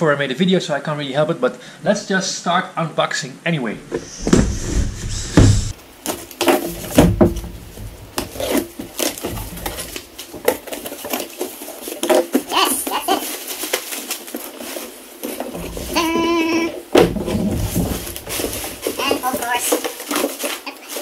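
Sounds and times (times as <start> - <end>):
cardboard scraping: 3.8 - 21.0
plastic packing rustling: 5.7 - 21.0.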